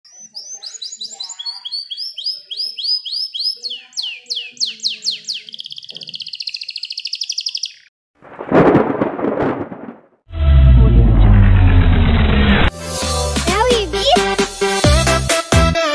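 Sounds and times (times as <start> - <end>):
canary singing: 0.1 - 7.9
rushing whoosh with rumble: 8.3 - 12.7
loud music: 12.7 - 15.9.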